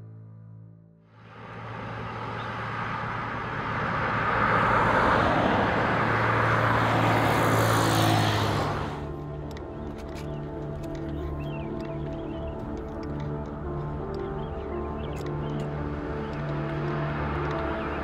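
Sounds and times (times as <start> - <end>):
soft background music: 6.7 - 18.0.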